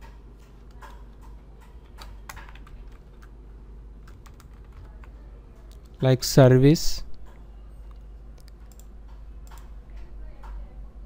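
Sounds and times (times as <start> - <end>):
keyboard typing: 0.0 - 3.3, 4.0 - 5.1, 7.9 - 9.7.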